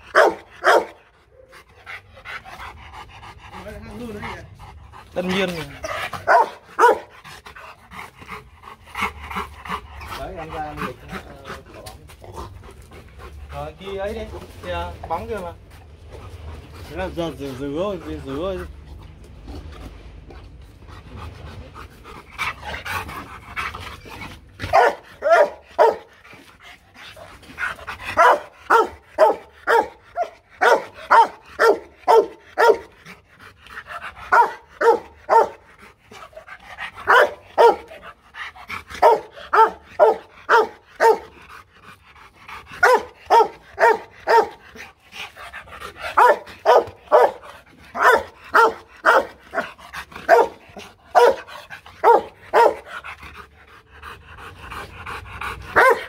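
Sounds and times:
dog barking loudly: 0:00.0 - 0:01.1, 0:05.2 - 0:07.2, 0:24.6 - 0:26.1, 0:28.0 - 0:33.0, 0:34.2 - 0:35.7, 0:36.8 - 0:38.1, 0:38.9 - 0:41.4, 0:42.7 - 0:44.9, 0:46.0 - 0:53.1, 0:55.7 - 0:56.0
dog panting: 0:00.0 - 0:56.0.

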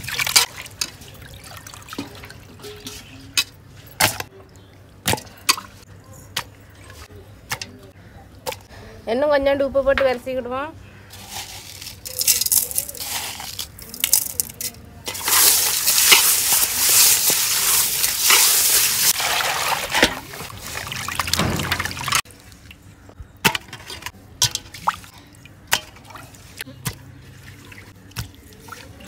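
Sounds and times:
water splashing and dripping: 0:00.0 - 0:04.2, 0:15.1 - 0:22.8, 0:24.4 - 0:29.0
water pouring into metal pot: 0:15.1 - 0:22.2.

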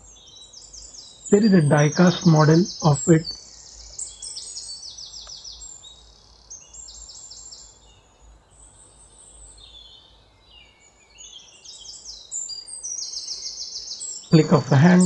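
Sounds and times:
small birds chirping: 0:00.0 - 0:15.0
faint low hum: 0:01.3 - 0:03.4, 0:14.3 - 0:15.0.

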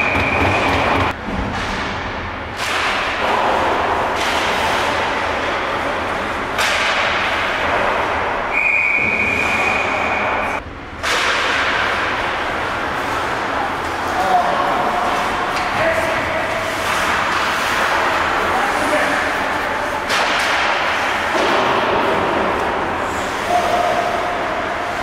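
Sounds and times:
hockey play on ice: 0:00.0 - 0:25.0
whistle blast: 0:08.5 - 0:10.6.

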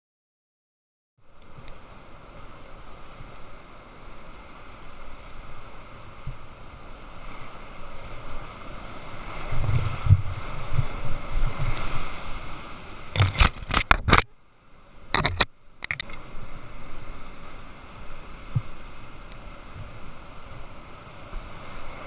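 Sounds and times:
boat thudding through waves: 0:01.5 - 0:22.0
water splashing on camera: 0:09.4 - 0:14.4, 0:15.1 - 0:16.3.

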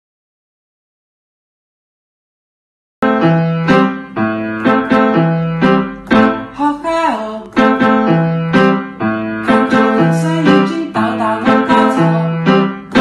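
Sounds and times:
bouncy piano tune: 0:03.0 - 0:13.0.

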